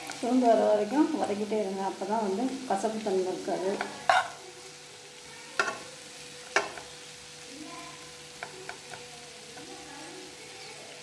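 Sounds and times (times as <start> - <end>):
faint sizzle: 0.0 - 11.0
metal spatula scraping a pan: 3.7 - 4.4
spatula tapping: 5.6 - 5.9, 6.5 - 6.9, 8.4 - 9.7.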